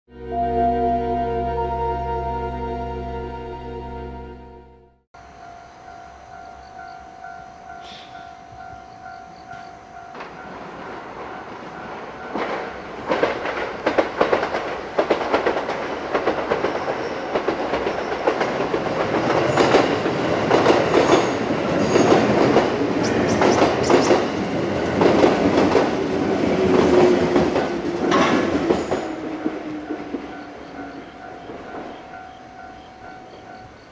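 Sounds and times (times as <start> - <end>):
electric train rushing past: 0.1 - 33.9
wheels clacking over rail joints: 9.0 - 33.7.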